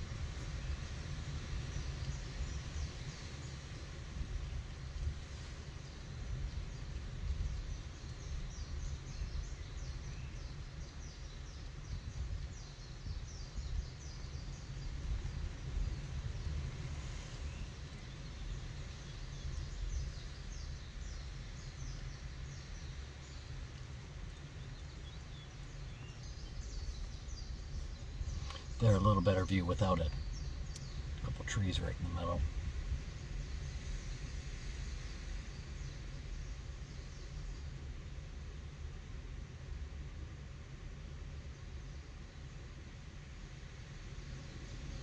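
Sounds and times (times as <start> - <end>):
low uneven rumble: 0.0 - 45.0
small birds chirping: 17.4 - 32.5.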